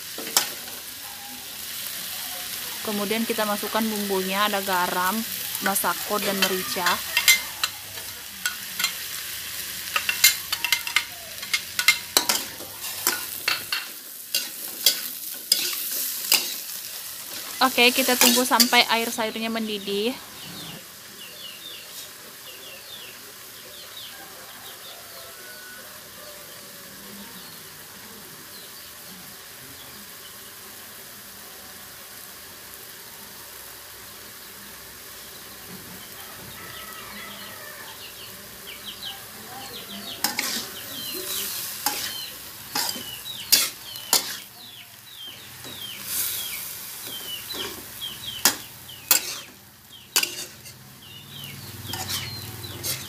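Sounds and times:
food sizzling in a wok: 0.0s - 53.0s
spatula scraping a wok: 5.5s - 19.1s, 21.8s - 22.2s, 40.2s - 53.0s.

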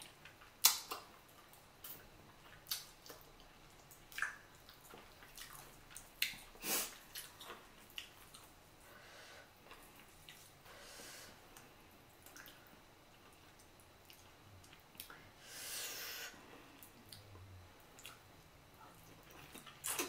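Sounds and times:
wet eating and lip smacks: 0.0s - 8.6s, 9.7s - 10.5s, 11.6s - 15.2s, 16.8s - 18.3s.

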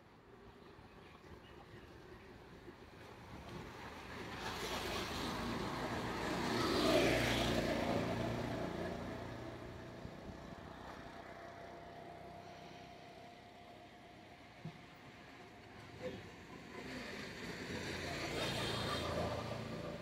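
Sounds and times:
motor vehicle passing by: 4.2s - 12.8s, 16.0s - 20.0s.

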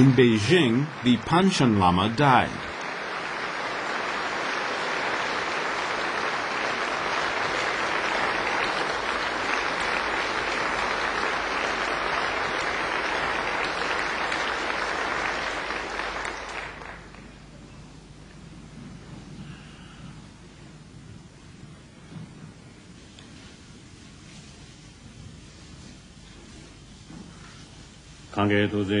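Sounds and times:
large audience applauding: 0.0s - 17.5s.

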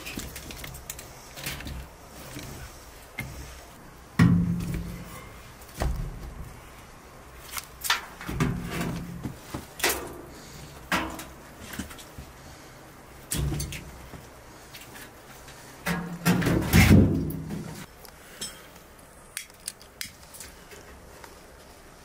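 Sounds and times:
firewood clunking in metal stove: 10.9s - 11.4s.

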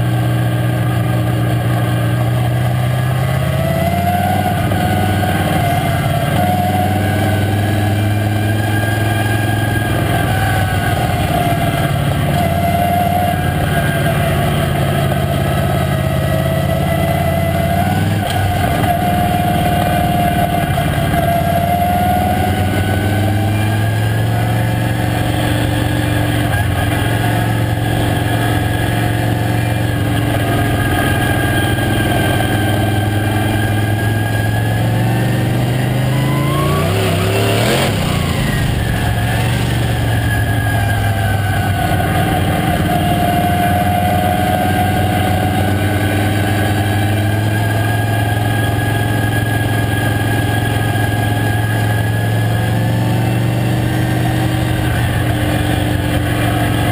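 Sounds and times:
race car engine running hard: 0.0s - 56.9s.

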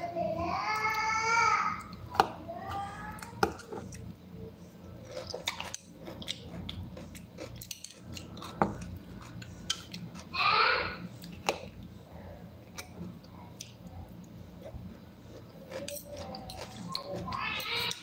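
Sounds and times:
chewing: 3.1s - 10.3s, 11.1s - 18.0s.

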